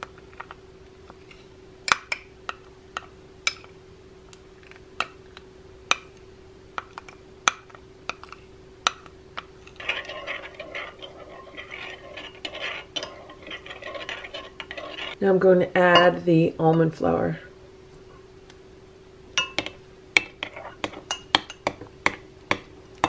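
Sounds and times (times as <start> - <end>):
faint steady hum: 0.0 - 23.0
spoon stirring eggs in glass bowl: 6.8 - 15.2, 19.4 - 23.0
spoon scraping honey from glass cup: 9.7 - 15.2.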